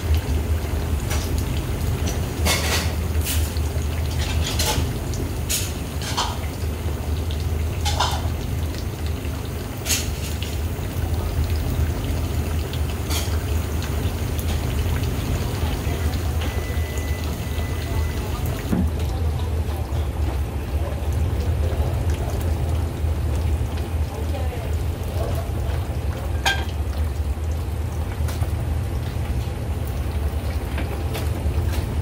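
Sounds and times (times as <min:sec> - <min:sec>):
broth bubbling in a pan: 0:00.0 - 0:32.0.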